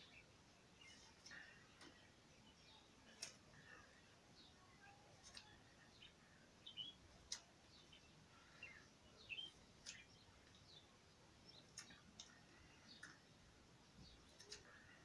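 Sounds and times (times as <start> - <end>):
faint background hiss: 0.0 - 15.0
soft clicks: 9.8 - 10.7, 14.3 - 14.8.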